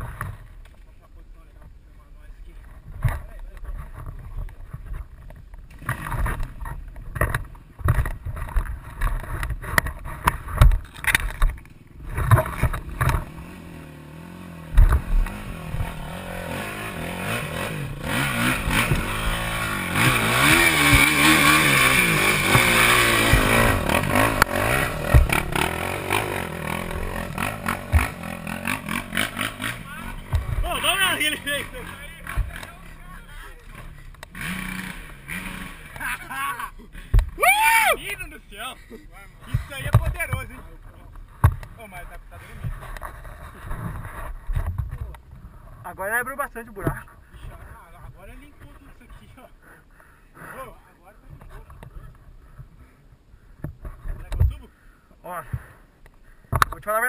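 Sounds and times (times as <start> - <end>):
knocks and scrapes: 2.6 - 13.4, 42.5 - 45.8
rear wheel spinning in dirt: 3.7 - 36.4
dirt bike engine revving: 5.7 - 38.8.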